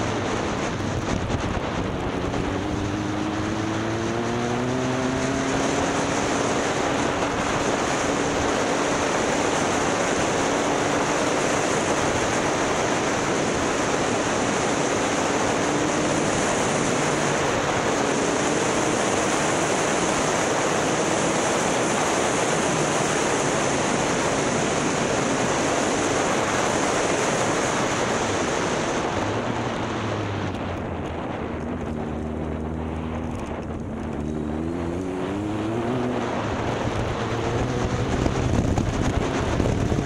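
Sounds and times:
motorcycle engine drone: 0.0s - 40.0s
wind rushing over microphone: 0.0s - 40.0s.

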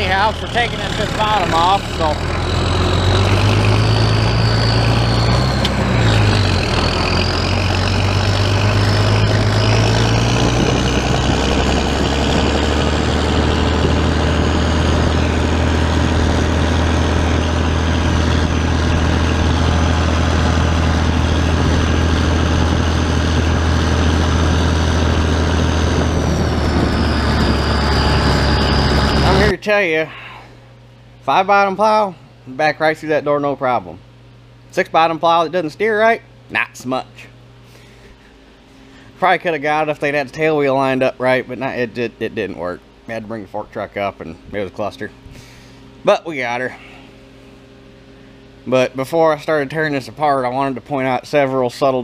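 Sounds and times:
tractor engine running: 0.0s - 29.6s
high thin whine: 0.0s - 30.5s.

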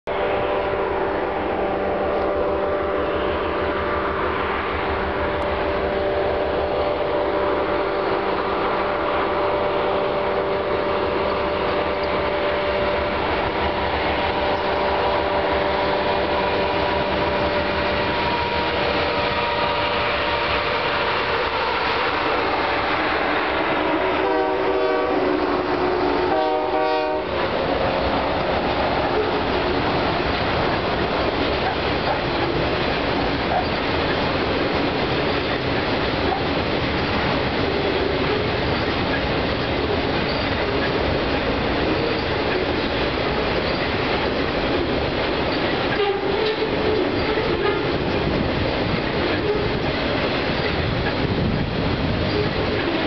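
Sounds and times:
rail cars rumbling and clattering: 0.0s - 53.0s
train air horn: 0.1s - 5.2s, 5.8s - 29.8s, 45.9s - 48.1s, 49.3s - 49.8s
locomotive engines rumbling: 0.1s - 53.0s.

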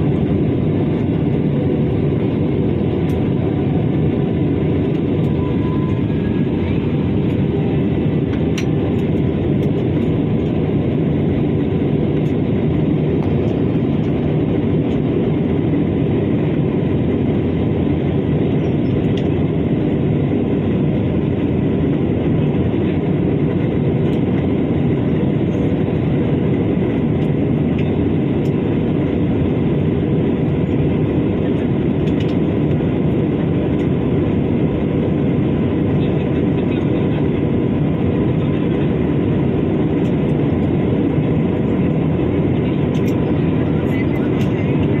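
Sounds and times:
jet airliner cabin drone: 0.0s - 45.0s.

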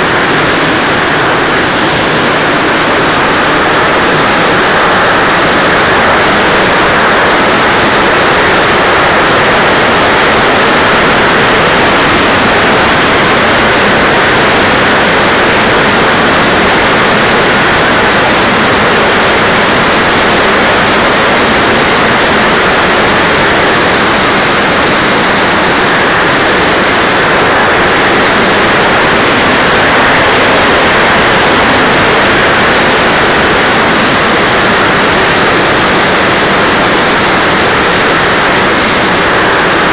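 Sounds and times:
model jet engine roar: 0.0s - 39.9s.

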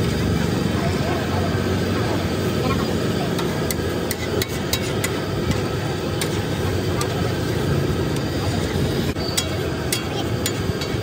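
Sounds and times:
traffic: 0.0s - 11.0s
murmur of voices: 0.5s - 9.0s
metal utensils clinking on metal: 9.2s - 11.0s.

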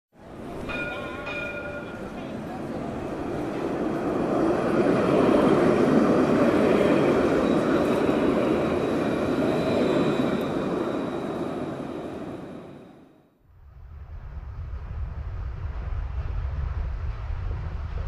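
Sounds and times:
train rumbling by: 0.2s - 13.2s.

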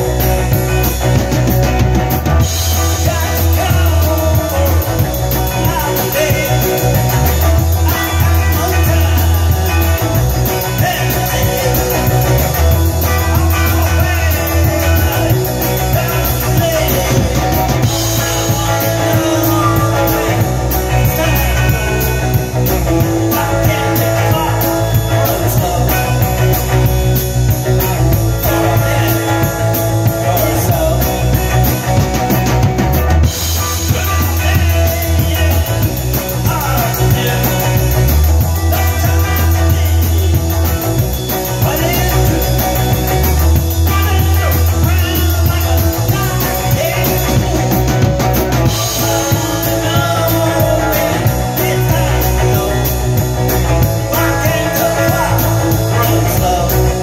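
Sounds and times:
rock music with drum kit: 0.0s - 57.0s.

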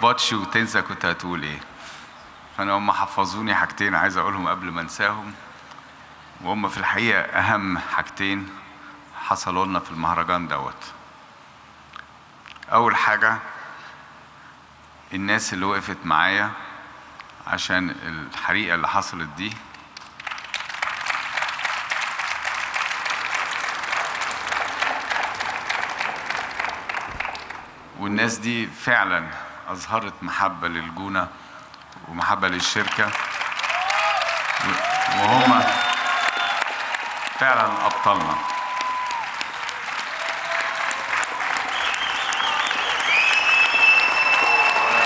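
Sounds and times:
audience applauding: 20.0s - 27.7s, 32.7s - 45.0s.

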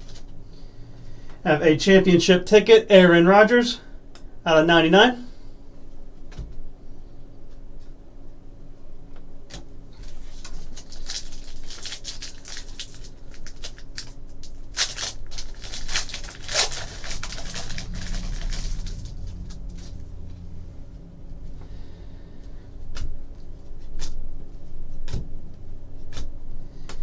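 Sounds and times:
wrapper crinkling and tearing: 10.0s - 20.0s
low rumble: 15.3s - 24.4s
cards being flicked through: 26.0s - 27.0s.

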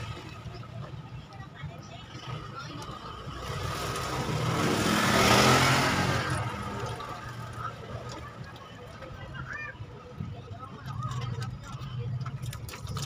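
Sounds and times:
vehicle passing by: 3.3s - 8.0s.

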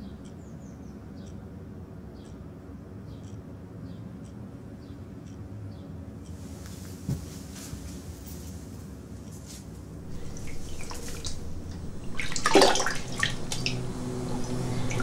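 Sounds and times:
water dripping: 10.0s - 15.0s
water running and splashing: 10.0s - 15.0s.

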